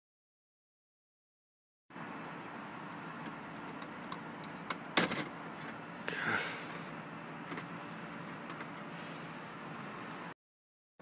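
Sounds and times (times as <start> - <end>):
steady low hum: 1.9 - 10.4
plastic scraping: 2.8 - 5.8.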